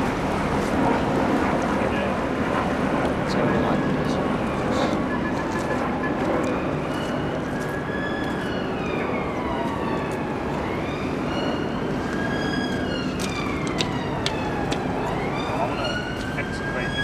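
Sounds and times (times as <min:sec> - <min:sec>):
steady background noise: 0:00.0 - 0:17.0
emergency siren wailing: 0:03.0 - 0:17.0.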